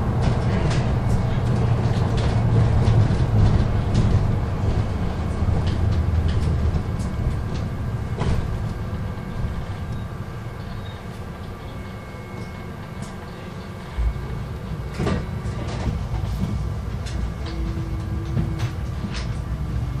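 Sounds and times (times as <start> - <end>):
bus interior rumble: 0.0 - 20.0
faint whining tones: 6.2 - 19.4.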